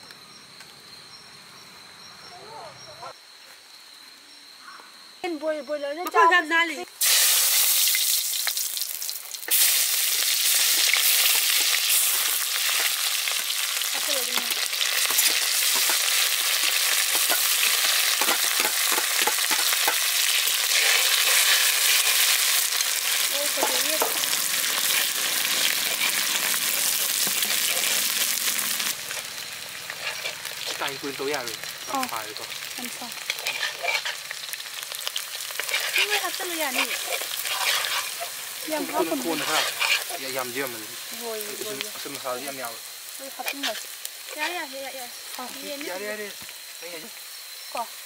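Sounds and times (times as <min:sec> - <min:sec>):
food sizzling in hot oil: 0:06.9 - 0:48.0.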